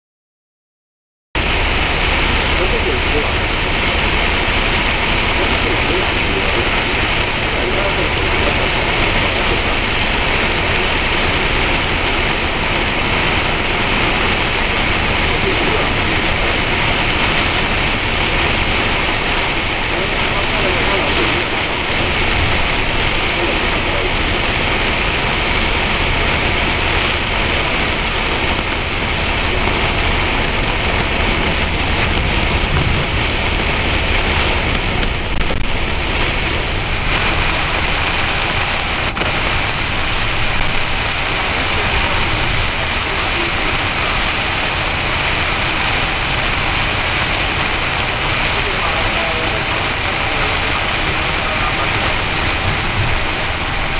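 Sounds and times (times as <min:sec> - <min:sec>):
rain and tyre spray: 0:01.4 - 0:53.9
road rumble: 0:01.4 - 0:53.9.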